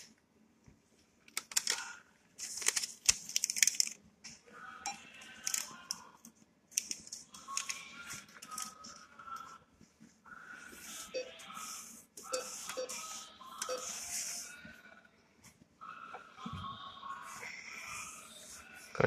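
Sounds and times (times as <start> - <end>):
paper receipt rustling: 2.4 - 4.0.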